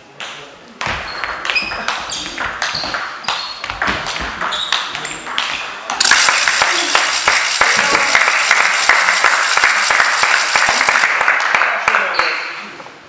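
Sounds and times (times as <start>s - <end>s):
applause: 6.0s - 12.6s.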